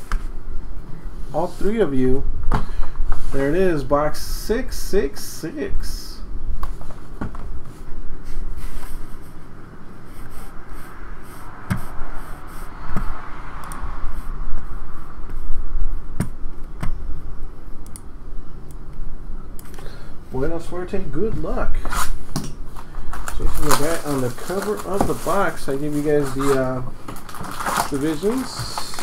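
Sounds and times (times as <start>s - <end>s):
rubbing and scraping: 23.0s - 29.0s.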